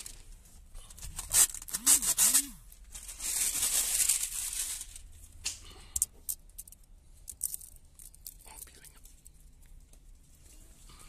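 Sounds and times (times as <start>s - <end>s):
film tearing and crackling: 1.0s - 8.4s.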